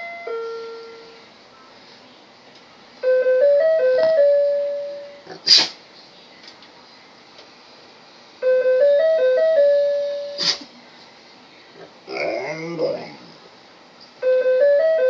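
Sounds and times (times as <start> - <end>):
electronic doorbell chime tune: 0.0 - 1.2, 3.0 - 5.2, 8.4 - 10.4, 14.2 - 15.0.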